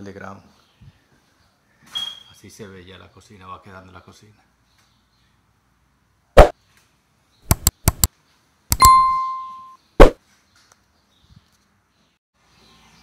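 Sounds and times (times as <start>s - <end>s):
quick clicks: 7.5s - 8.1s, 8.7s - 9.0s
sharp knock: 7.5s - 8.1s
bright bell-like ding: 8.8s - 9.8s.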